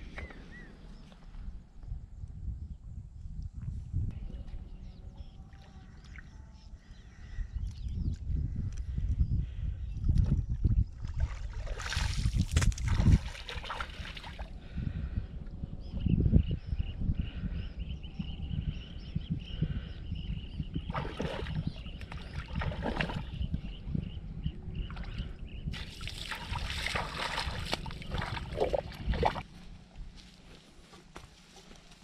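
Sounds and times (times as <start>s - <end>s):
water sloshing and splashing: 11.0s - 14.5s, 20.9s - 23.4s, 24.8s - 29.7s.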